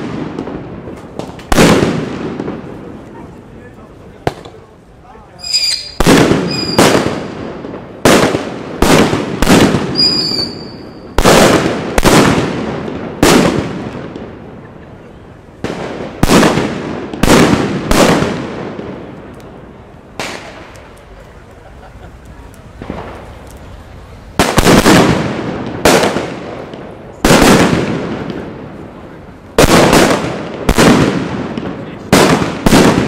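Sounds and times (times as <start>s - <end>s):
firecrackers banging: 0.0s - 33.0s
short high whistle: 5.4s - 6.8s, 10.0s - 11.0s.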